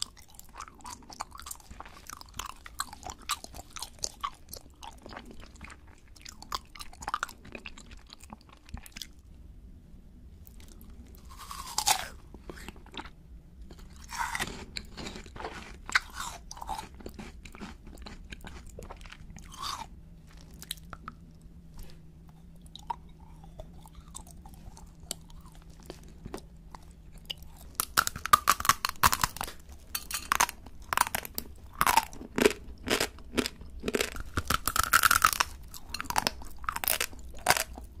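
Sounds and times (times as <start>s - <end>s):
wet mouth sounds and chewing: 0.0s - 9.2s, 10.4s - 38.0s
crisp crunching bites: 11.2s - 13.0s, 27.3s - 37.9s.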